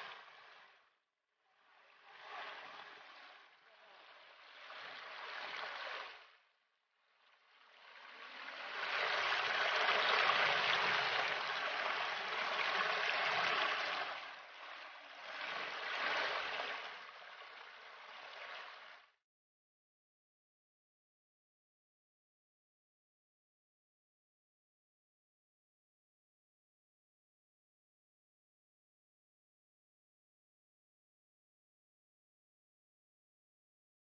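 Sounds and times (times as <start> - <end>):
stream splashing over rocks: 8.6 - 14.1.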